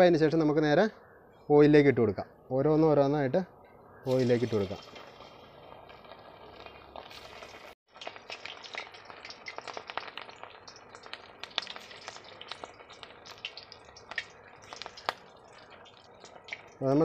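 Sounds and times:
meat deep-frying in oil: 4.1 - 17.0
sharp crackling pops: 4.1 - 17.0.

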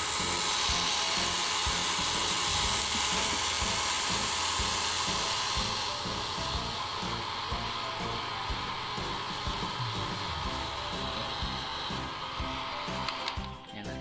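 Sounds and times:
hair dryer whirring: 0.0 - 13.6.

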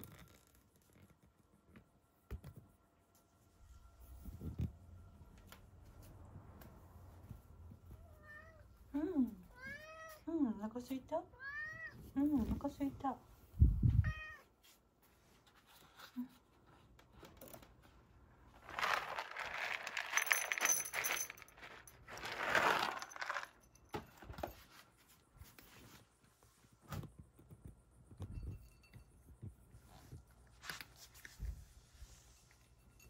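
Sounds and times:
dry food rattling into ceramic bowl: 18.6 - 23.7.

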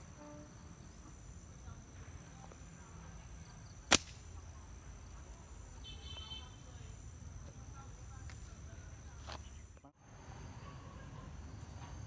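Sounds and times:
high insect drone: 0.0 - 12.0
slingshot snapping: 3.9 - 4.3.

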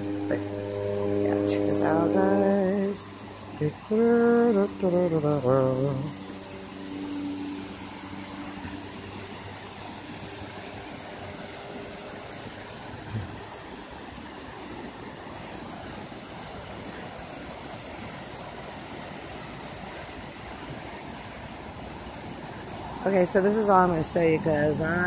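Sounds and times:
waterfall rushing: 0.0 - 25.0.

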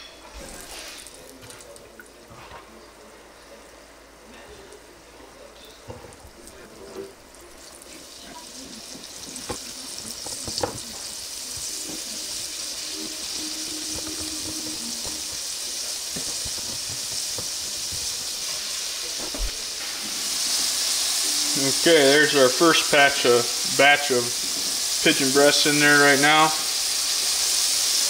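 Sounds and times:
food sizzling in oil: 6.3 - 28.0.

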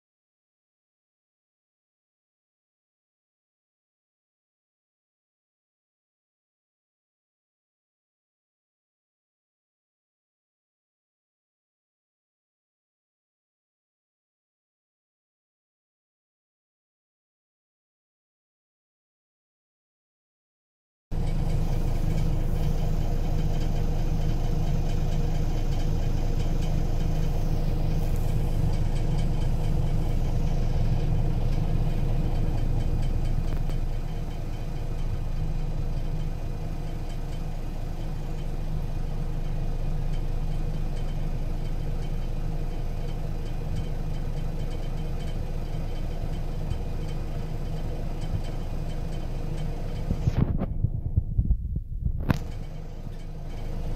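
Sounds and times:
bus diesel engine idling: 21.1 - 53.9.

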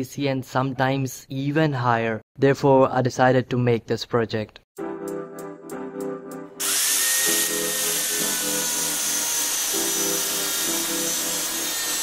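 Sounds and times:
background music: 4.8 - 12.0
angle grinder cutting steel: 6.6 - 12.0.

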